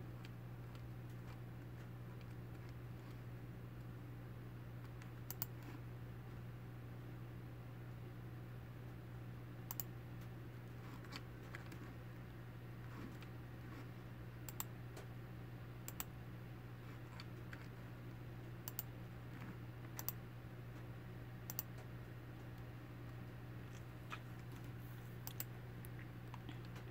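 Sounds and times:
steady low hum: 0:00.0 - 0:26.9
faint sharp clicks: 0:21.5 - 0:21.9.

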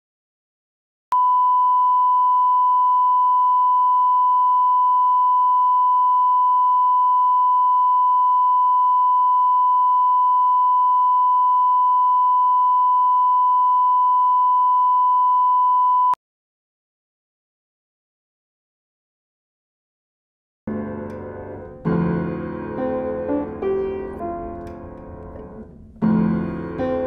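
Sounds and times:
pure test tone: 0:01.1 - 0:16.2.

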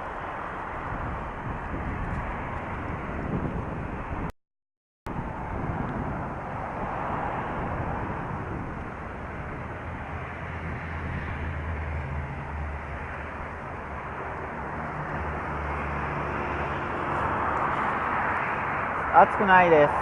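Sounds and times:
wind noise on microphone: 0:00.0 - 0:04.3, 0:05.1 - 0:20.0
road traffic: 0:00.0 - 0:04.4, 0:05.1 - 0:20.0
passing vehicle engine hum: 0:05.1 - 0:20.0.

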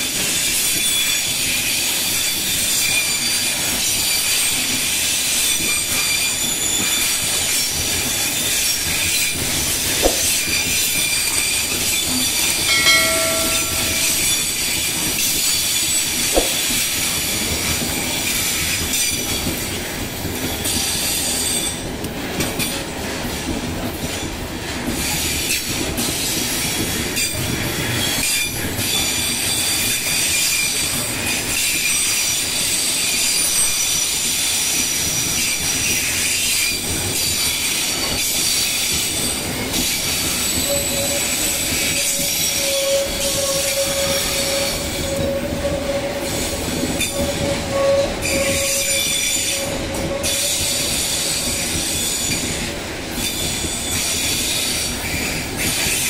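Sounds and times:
sharp knocks: 0:10.0 - 0:10.5, 0:12.7 - 0:14.5, 0:16.4 - 0:16.7
brief pitched tone: 0:12.7 - 0:14.5
train rolling rumble: 0:36.8 - 0:56.0
steel wheels screeching: 0:37.2 - 0:56.0.

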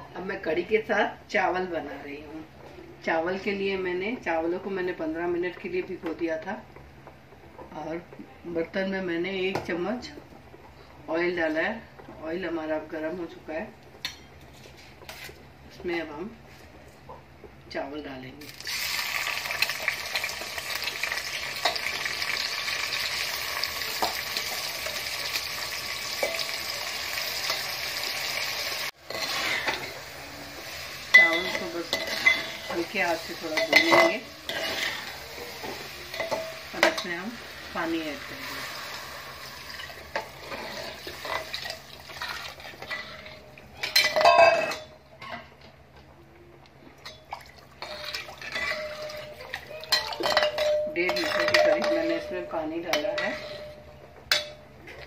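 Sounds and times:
rice sizzling in hot oil: 0:18.4 - 0:43.2
metal clinks against pot: 0:47.0 - 0:54.7
metallic clang with ringing: 0:48.6 - 0:54.7
spoon scraping rice in pot: 0:53.0 - 0:53.9.

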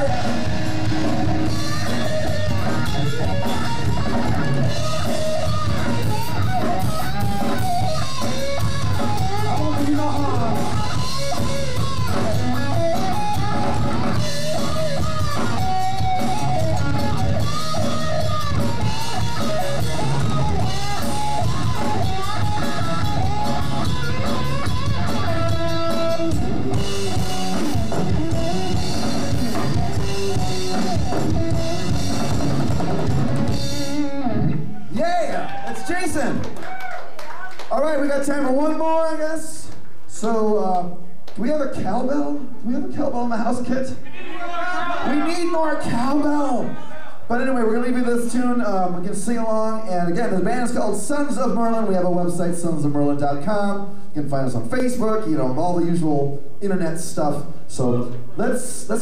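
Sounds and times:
steady bass drum beat: 0:00.0 - 0:34.2
bending electric guitar lines: 0:00.0 - 0:35.0
live rock band playing: 0:00.0 - 0:38.9.

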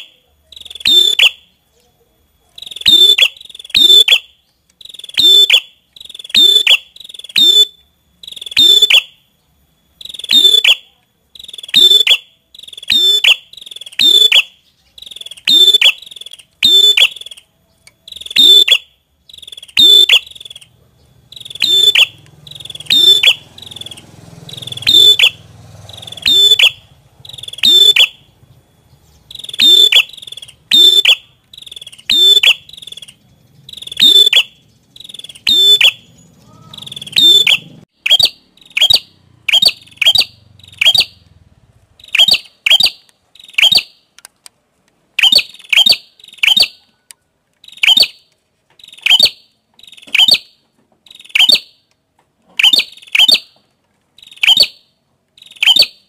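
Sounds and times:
bird calling high sliding notes: 0:00.0 - 0:01.6, 0:02.5 - 0:44.1
faint low hum: 0:00.0 - 0:37.8.

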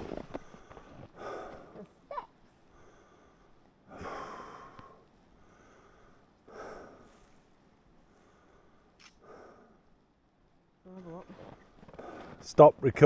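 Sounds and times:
person breathing: 0:00.2 - 0:01.9, 0:02.6 - 0:10.0.

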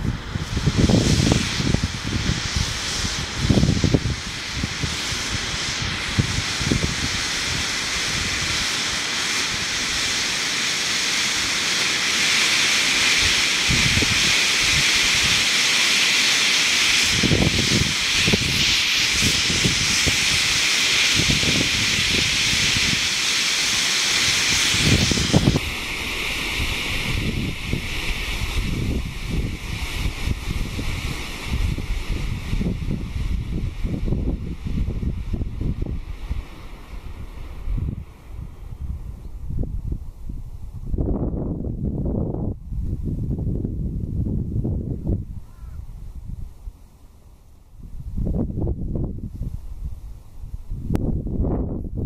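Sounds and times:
smoke grenade hissing: 0:00.0 - 0:40.9
wind rumbling on microphone: 0:00.0 - 0:52.0.

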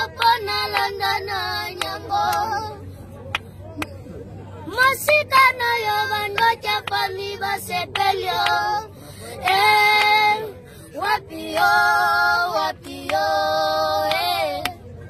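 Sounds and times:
boys singing unaccompanied: 0:00.0 - 0:02.9, 0:04.7 - 0:14.8.

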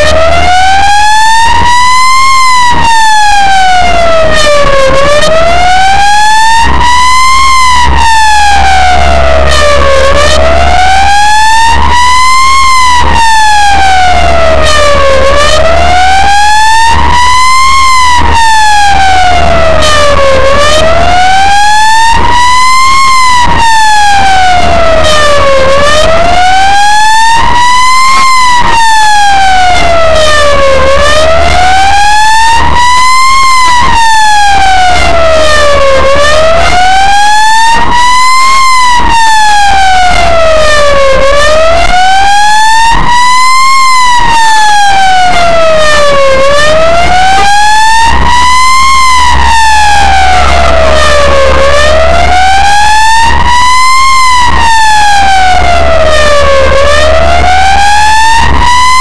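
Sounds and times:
ambulance siren wailing: 0:00.0 - 0:59.0.

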